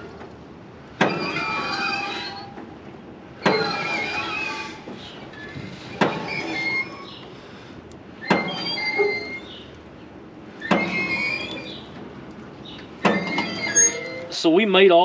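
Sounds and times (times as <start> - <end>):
thin squeak of moving parts: 3.4 - 7.3, 8.2 - 9.7, 10.6 - 12.0, 12.7 - 14.4.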